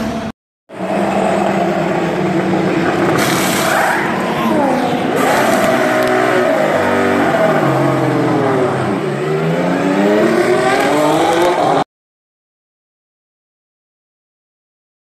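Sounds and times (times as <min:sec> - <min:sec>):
racing car engine revving: 0:00.0 - 0:11.9.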